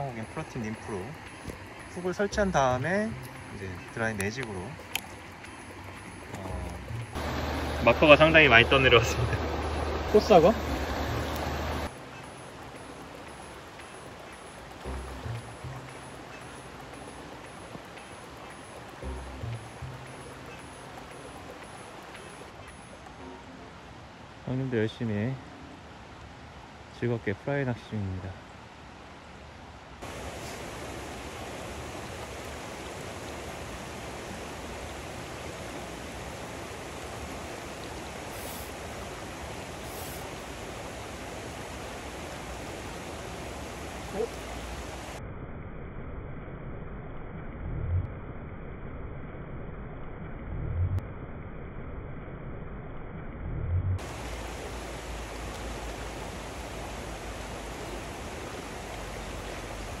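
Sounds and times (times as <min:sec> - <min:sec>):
river rushing over rocks: 0:00.0 - 0:19.0, 0:30.0 - 0:45.2, 0:54.0 - 1:00.0.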